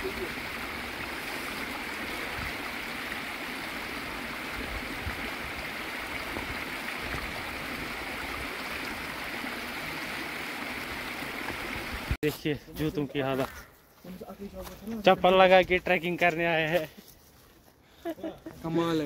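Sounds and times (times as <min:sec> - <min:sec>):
stream water rushing: 0:00.0 - 0:12.2.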